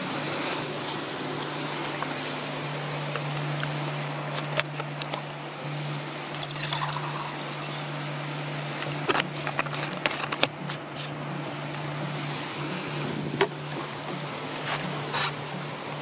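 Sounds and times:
water pouring into metal pot: 6.4s - 7.7s.

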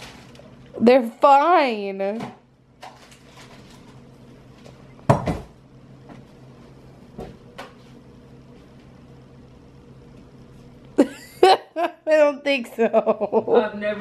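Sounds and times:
low steady hum: 0.0s - 14.0s
knocks of household things handled: 5.1s - 5.6s.

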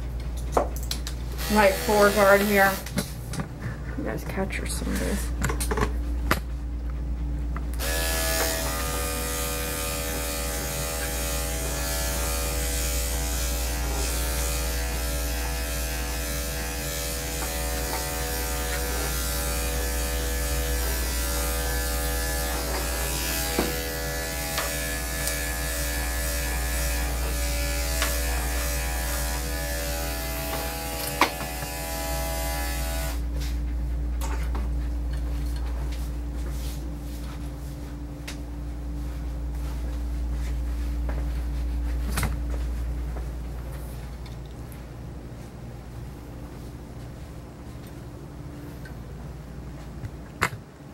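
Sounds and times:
electric clippers running: 1.3s - 3.1s, 7.7s - 33.3s.

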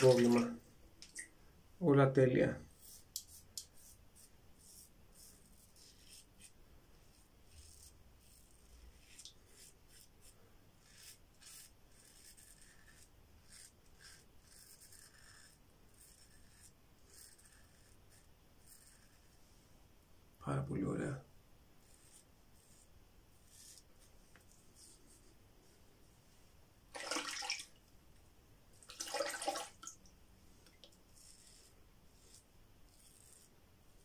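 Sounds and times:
razor scraping stubble: 7.1s - 19.3s, 30.6s - 34.0s.

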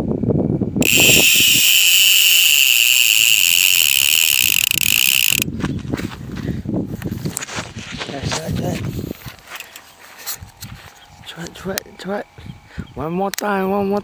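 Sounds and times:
fishing reel drag whining: 0.8s - 5.5s.

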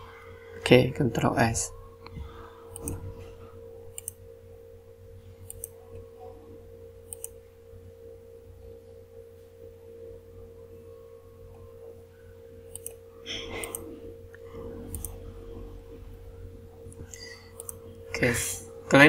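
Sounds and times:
faint background tone: 0.0s - 19.0s
low hum: 0.0s - 19.0s
computer mouse clicks: 2.7s - 3.0s, 3.9s - 4.2s, 5.4s - 5.8s, 7.1s - 7.4s, 12.7s - 13.0s, 13.6s - 15.2s, 17.0s - 17.8s.

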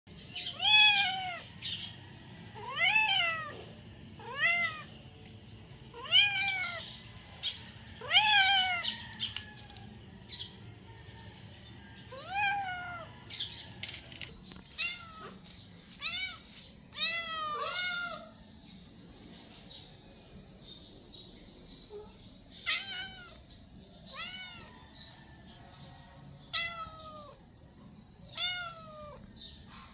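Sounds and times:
cat meowing: 0.4s - 1.5s, 2.6s - 3.5s, 4.2s - 4.9s, 5.9s - 6.8s, 8.0s - 9.0s, 12.1s - 13.1s, 14.8s - 15.4s, 16.0s - 18.3s, 21.9s - 23.4s, 24.1s - 24.7s, 26.5s - 27.4s, 28.3s - 29.3s.

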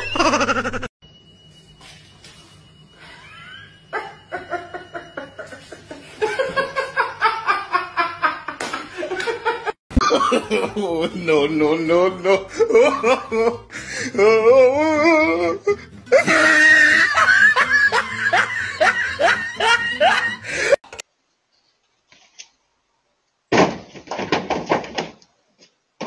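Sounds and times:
people laughing hard: 0.2s - 0.9s, 3.9s - 11.4s, 12.2s - 14.0s, 15.4s - 20.8s.

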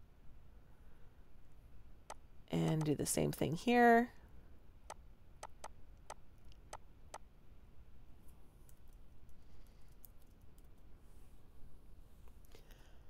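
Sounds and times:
keyboard key taps: 5.4s - 5.7s
mouse clicks: 5.4s - 5.7s.

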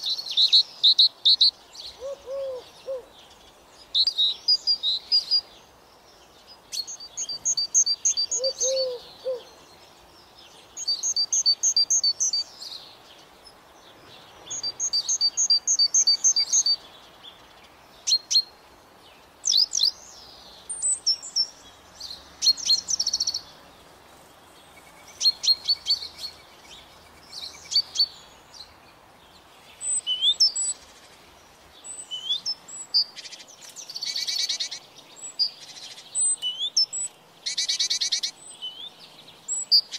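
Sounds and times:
bird chirps and calls: 0.0s - 18.6s, 19.4s - 23.8s, 24.6s - 39.9s
songbird trilling: 6.6s - 9.6s, 10.8s - 12.8s, 14.5s - 16.8s, 24.7s - 28.8s, 29.7s - 31.2s, 31.8s - 39.9s.

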